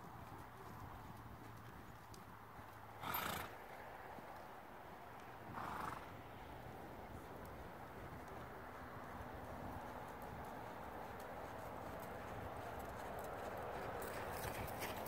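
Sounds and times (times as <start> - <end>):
muffled hoofbeats on sand: 0.0 - 4.5, 5.2 - 15.0.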